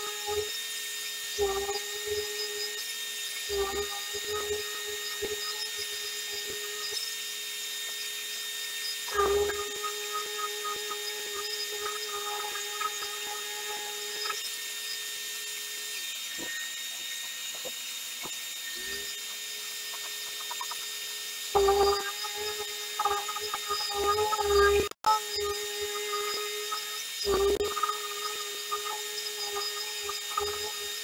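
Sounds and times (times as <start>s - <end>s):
high-pitched hum: 0.0s - 31.0s
orbital sander sanding wood: 7.6s - 31.0s.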